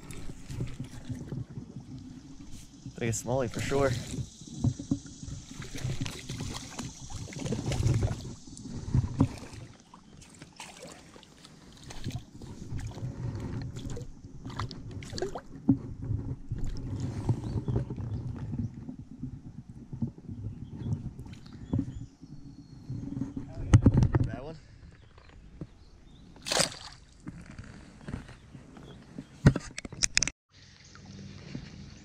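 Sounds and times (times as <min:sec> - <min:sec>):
water sloshing and splashing: 0:00.0 - 0:24.1, 0:26.4 - 0:27.5.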